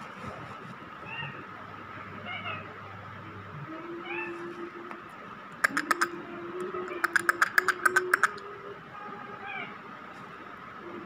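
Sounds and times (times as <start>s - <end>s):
parakeet sharp clicks: 5.6s - 6.1s, 6.9s - 8.4s.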